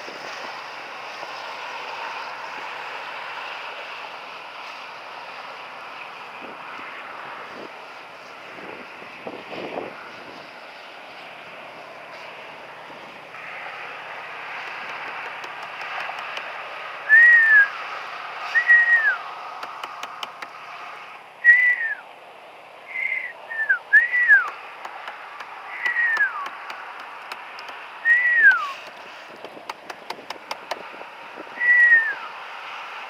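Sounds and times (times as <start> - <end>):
person whistling short notes: 17.1 - 17.7, 18.5 - 19.2, 21.4 - 22.0, 22.9 - 24.6, 25.8 - 26.5, 28.0 - 28.8, 31.6 - 32.3.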